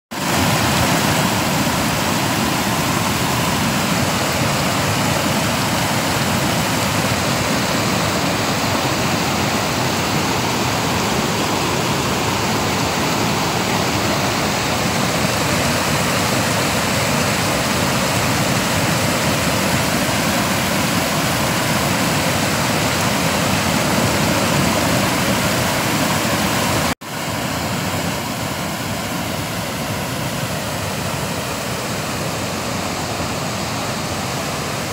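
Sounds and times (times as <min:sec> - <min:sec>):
river rushing: 0:00.1 - 0:34.9.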